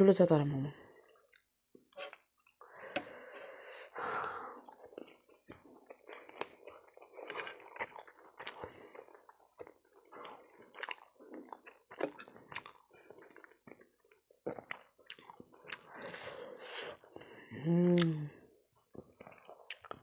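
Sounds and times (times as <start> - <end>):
chewing with wet mouth sounds: 4.5 - 17.4, 18.0 - 20.0.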